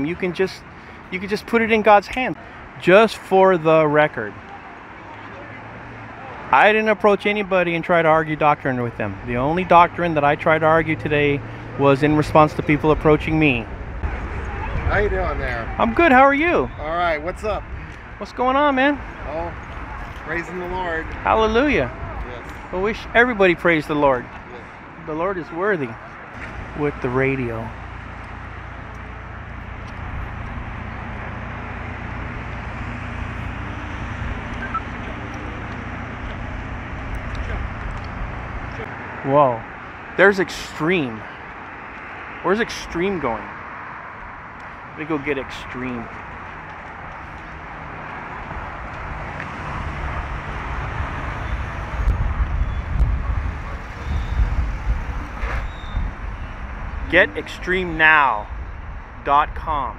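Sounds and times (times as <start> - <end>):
vehicle engine and road noise: 0.0 - 59.9
low rumbling on microphone: 49.9 - 57.1.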